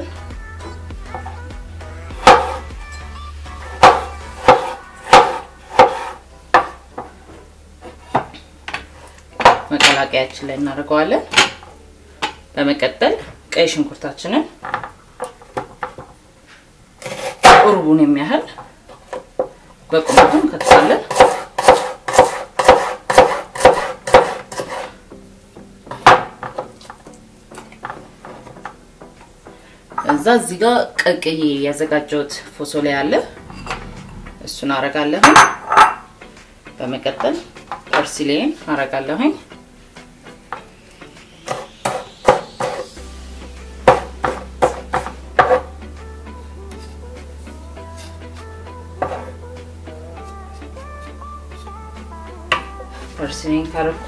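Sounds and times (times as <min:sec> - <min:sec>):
knife slicing onion on board: 0:02.2 - 0:02.6, 0:03.8 - 0:06.7, 0:17.0 - 0:17.7, 0:20.1 - 0:25.0.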